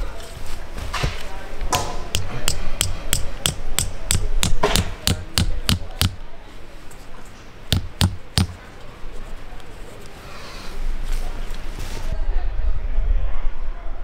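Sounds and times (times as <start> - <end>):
sharp knocks: 1.7 - 6.2, 7.7 - 8.6.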